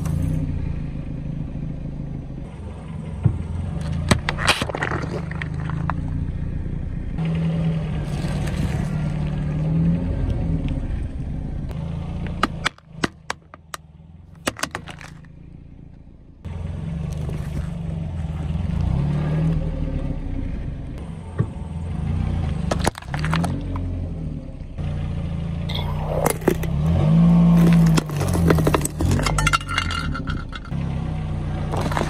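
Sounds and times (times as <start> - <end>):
car engine running: 0.0 - 32.0
plastic boxes cracking under tyre: 3.8 - 6.0, 12.3 - 13.8, 14.4 - 15.3, 22.6 - 23.9, 27.5 - 29.8, 31.7 - 32.0
crushed items crunching: 4.1 - 6.0, 17.1 - 18.6, 22.7 - 23.6, 27.5 - 30.7, 31.7 - 32.0.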